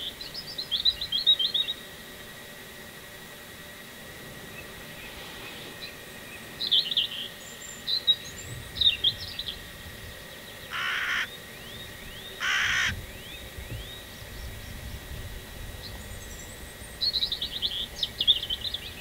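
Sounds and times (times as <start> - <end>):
crow cawing: 10.7 - 11.3, 12.4 - 13.0.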